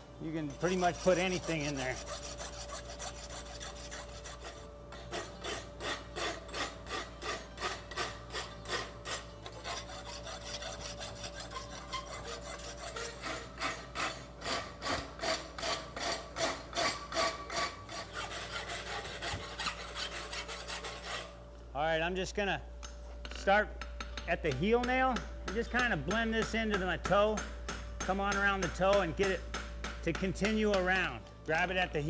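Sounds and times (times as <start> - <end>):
rasp filing steel horseshoe: 0.3 - 21.3.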